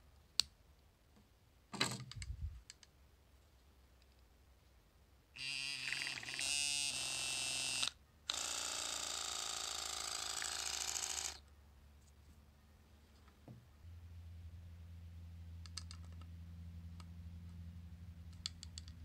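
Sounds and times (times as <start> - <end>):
pump motor buzzing: 5.4 - 11.4
faint low hum: 11.2 - 19.0.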